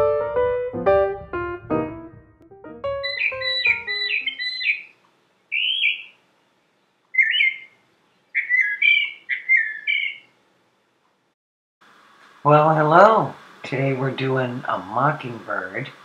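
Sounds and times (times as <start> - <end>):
piano tune: 0.0 - 4.7
mockingbird singing: 2.9 - 6.2, 7.1 - 10.4.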